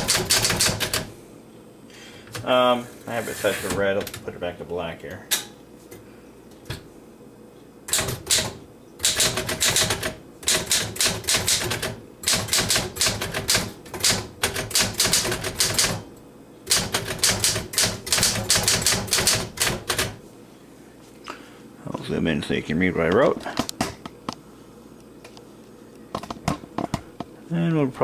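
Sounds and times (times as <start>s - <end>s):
manual typewriter typing: 0.0s - 1.1s, 7.9s - 16.0s, 16.7s - 20.2s.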